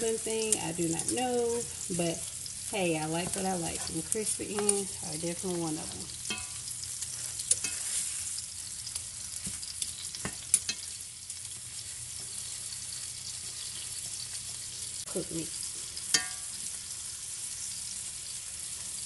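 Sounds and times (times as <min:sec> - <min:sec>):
meat sizzling in a skillet: 0:00.0 - 0:19.0
metal spatula clinking and scraping: 0:06.2 - 0:06.6, 0:07.4 - 0:08.0, 0:16.0 - 0:16.6.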